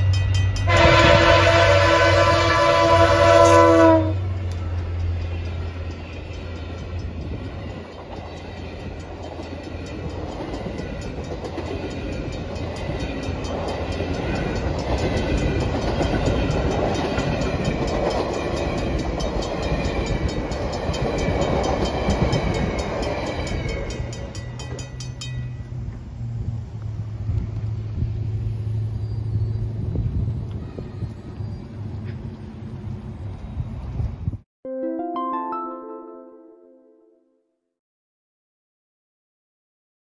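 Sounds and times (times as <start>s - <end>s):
crossing bell ringing: 0.0s - 1.7s, 4.2s - 25.9s
diesel locomotive engine: 0.0s - 34.4s
train wheels on rails: 0.0s - 34.4s
train horn: 0.6s - 4.6s.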